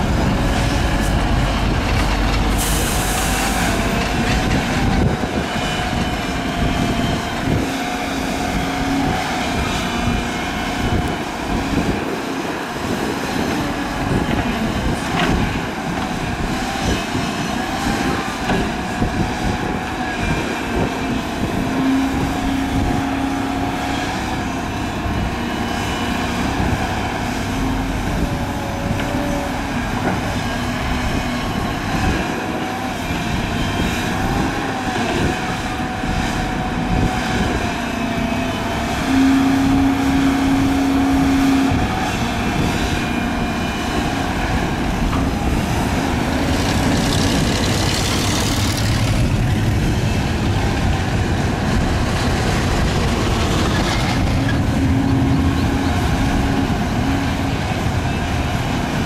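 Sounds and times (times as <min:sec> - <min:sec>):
excavator engine running: 0:00.0 - 0:59.0.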